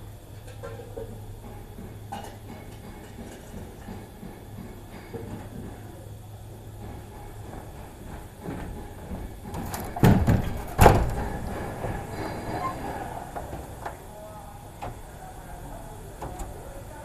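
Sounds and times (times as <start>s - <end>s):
rattling knocks: 7.6s - 14.0s.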